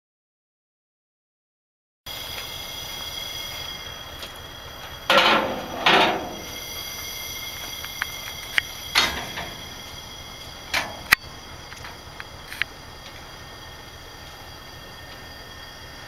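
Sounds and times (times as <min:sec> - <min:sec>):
steady hiss: 0:02.1 - 0:16.0
loud metallic clanks: 0:05.0 - 0:06.9, 0:07.6 - 0:12.0.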